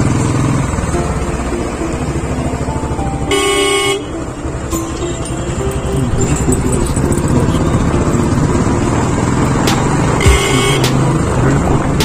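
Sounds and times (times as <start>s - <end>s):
motorcycle engine and road rumble: 0.0s - 12.0s
horn beep: 2.8s - 4.4s, 10.2s - 11.2s.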